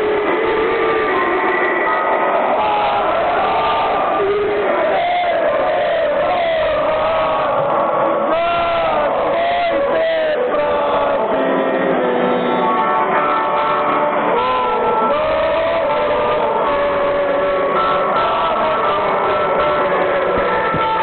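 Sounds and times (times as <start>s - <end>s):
stadium crowd singing: 0.0s - 21.0s.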